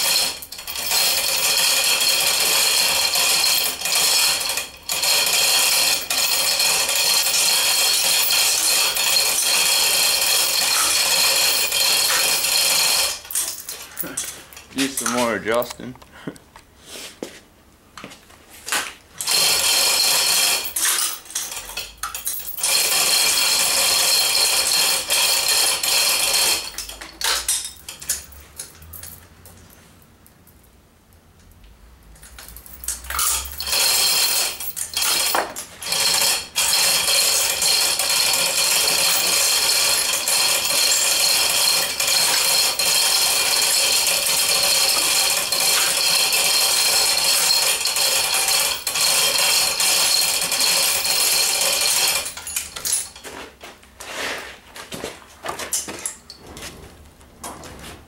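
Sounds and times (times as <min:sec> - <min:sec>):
hoist chain rattling and clinking: 0:00.0 - 0:15.7, 0:19.2 - 0:29.6, 0:32.2 - 0:53.4.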